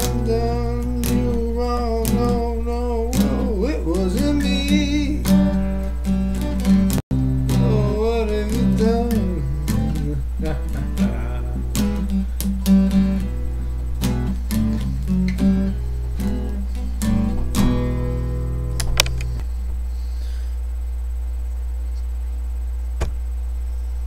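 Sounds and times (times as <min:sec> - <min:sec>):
acoustic guitar strumming chords: 0:00.0 - 0:19.4
steady low hum: 0:00.0 - 0:24.0
single click: 0:18.8 - 0:19.5.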